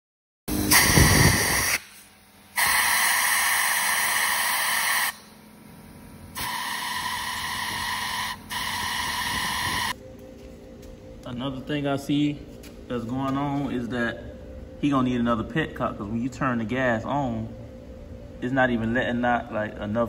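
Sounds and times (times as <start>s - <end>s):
air nozzle hissing: 0.5s - 5.4s, 6.4s - 10.0s.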